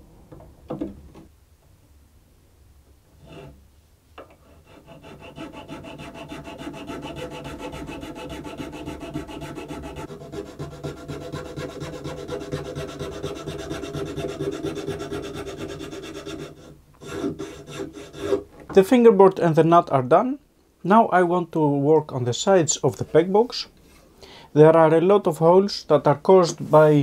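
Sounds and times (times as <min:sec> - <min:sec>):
hand file rasping: 0:03.2 - 0:03.6, 0:04.3 - 0:18.5.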